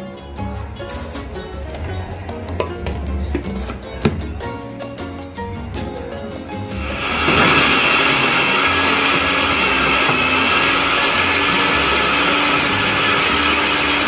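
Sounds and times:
blender motor running: 6.7s - 14.0s.

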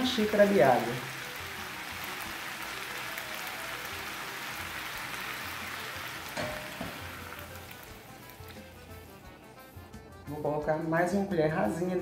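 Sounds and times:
water splashing into a pan: 0.0s - 8.9s
vegetables sizzling in a frying pan: 0.0s - 9.2s.

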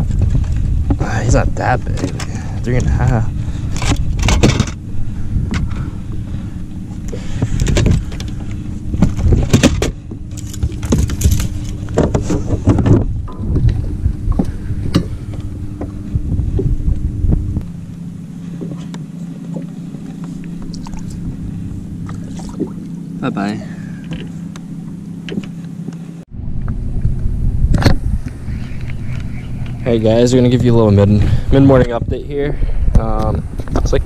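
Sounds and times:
knocks and clatter on boat deck: 0.0s - 4.8s, 5.4s - 6.3s, 6.9s - 17.7s, 18.5s - 21.2s, 24.0s - 26.1s
low hum and rumble: 0.0s - 34.0s.

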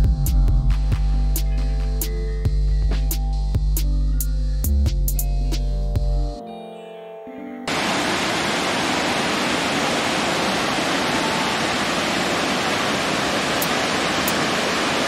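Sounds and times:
music: 0.0s - 7.7s
waterfall rushing over rocks: 7.7s - 15.0s.

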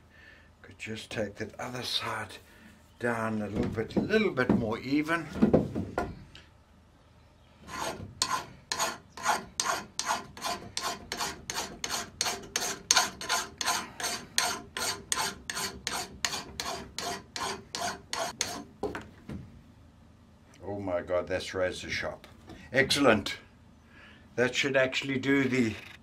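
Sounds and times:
file rasping on steel: 7.7s - 18.7s.

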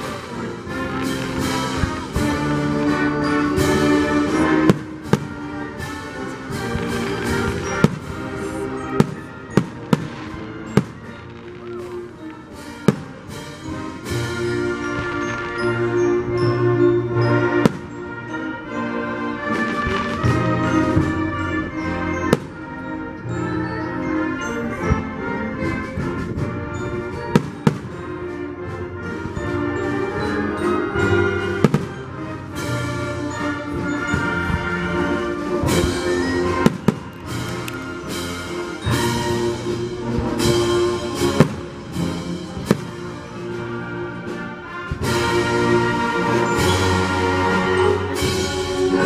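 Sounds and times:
fireworks bursting: 0.0s - 15.7s, 35.6s - 43.3s
orchestral music with brass: 0.0s - 49.0s
fireworks bangs: 6.6s - 13.5s, 36.6s - 38.0s, 42.6s - 43.1s.

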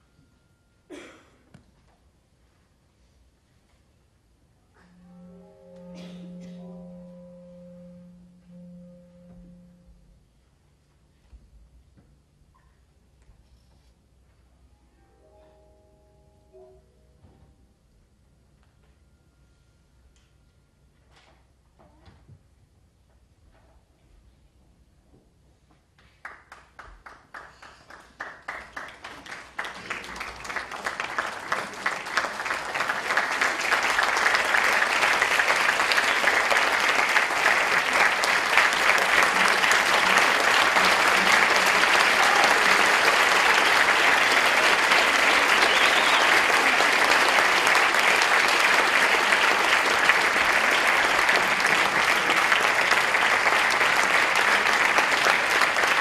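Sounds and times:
audience applause: 26.2s - 56.0s.

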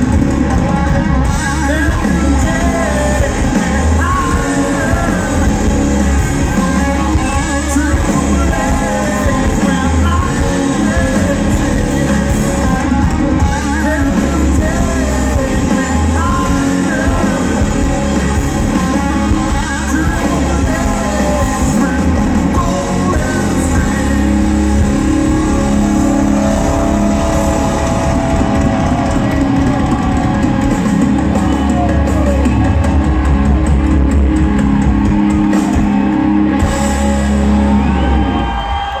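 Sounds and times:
person singing lead vocal: 0.0s - 30.7s
electric guitars: 0.0s - 39.0s
live rock band playing: 0.0s - 39.0s.

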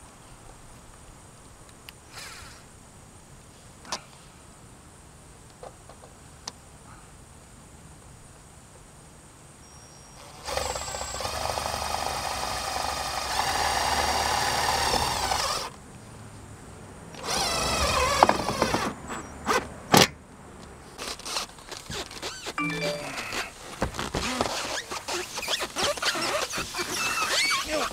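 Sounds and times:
drill driving screws into metal: 10.4s - 14.0s.

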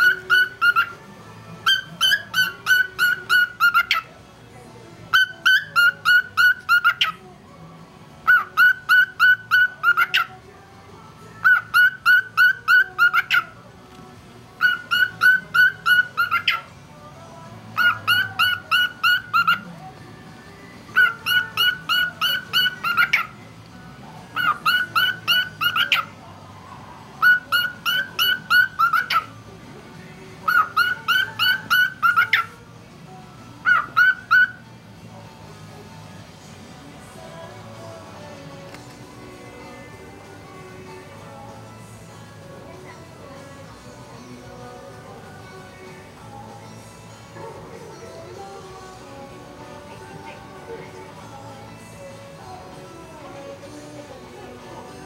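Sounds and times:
cockatiel whistling: 0.0s - 1.0s, 1.6s - 4.1s, 5.1s - 7.2s, 8.2s - 10.3s, 11.4s - 13.5s, 14.6s - 16.7s, 17.8s - 19.7s, 20.9s - 23.4s, 24.4s - 26.1s, 27.2s - 29.4s, 30.4s - 32.6s, 33.6s - 34.6s.

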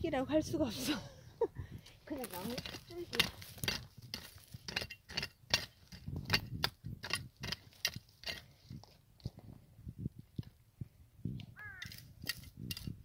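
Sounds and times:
trowel scraping stony soil: 2.1s - 8.9s.

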